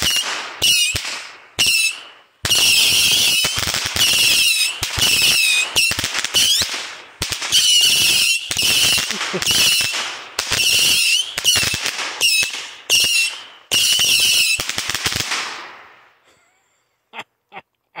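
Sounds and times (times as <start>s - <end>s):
shrill missile whistles: 0.0s - 6.7s, 7.5s - 14.6s
sharp cracks: 0.0s - 16.2s.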